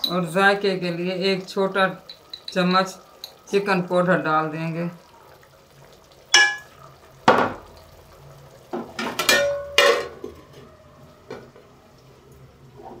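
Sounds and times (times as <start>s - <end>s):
metal pot and lid clanking: 6.3s - 6.8s, 8.9s - 10.4s.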